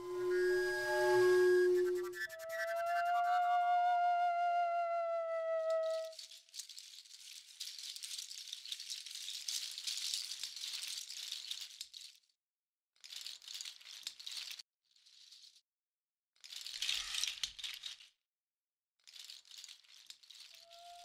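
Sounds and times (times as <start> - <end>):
hand rattle shaking: 5.8 - 12.3, 13.0 - 15.5, 16.4 - 18.1, 19.0 - 21.0.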